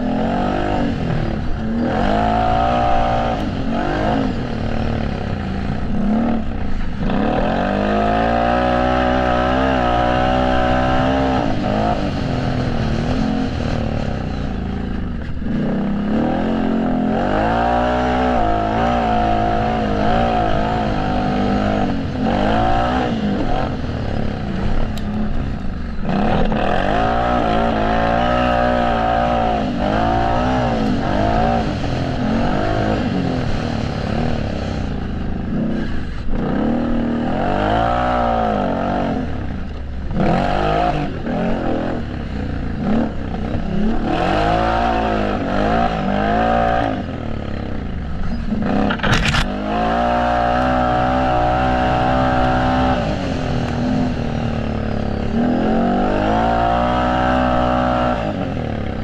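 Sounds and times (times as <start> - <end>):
quad engine revving hard: 0.0 - 14.6, 15.4 - 25.4, 26.0 - 59.0.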